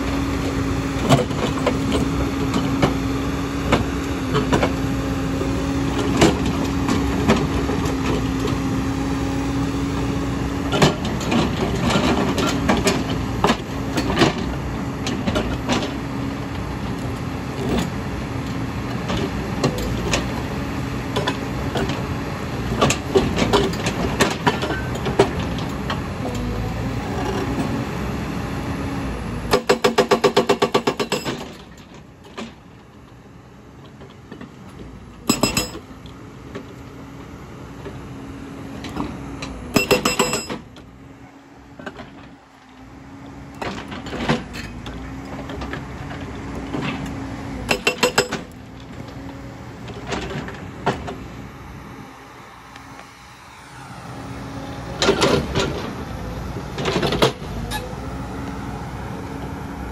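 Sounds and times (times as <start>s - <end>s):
excavator diesel engine running: 0.0s - 59.9s
hydraulic breaker hammering rock: 29.5s - 31.6s, 35.2s - 35.9s, 39.7s - 40.7s, 47.6s - 48.6s.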